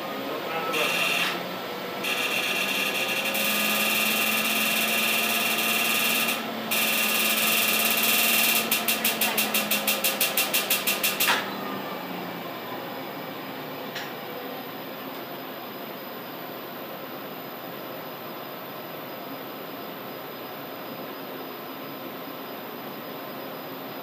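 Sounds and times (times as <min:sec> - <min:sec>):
laser machine hiss and whine: 0:00.1 - 0:12.3
rapid machine pulsing: 0:02.0 - 0:11.3.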